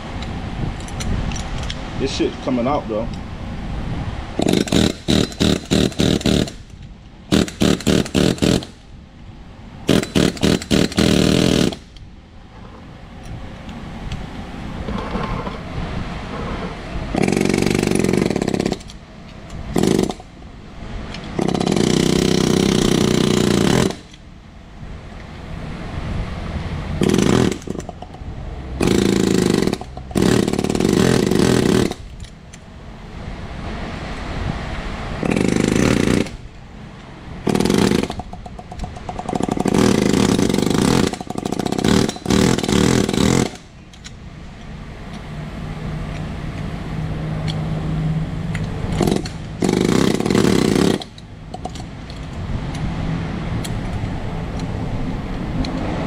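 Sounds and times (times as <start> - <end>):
air hammer hammering on steel: 4.4 - 6.7, 7.3 - 8.8, 9.9 - 11.9.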